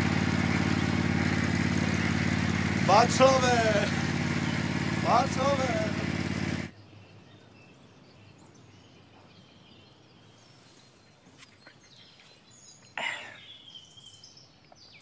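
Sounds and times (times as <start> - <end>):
faint bird chirps: 6.7 - 15.0.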